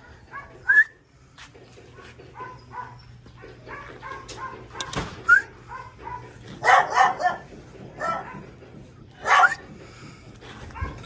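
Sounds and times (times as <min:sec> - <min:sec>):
dog whining: 0:02.4 - 0:08.4.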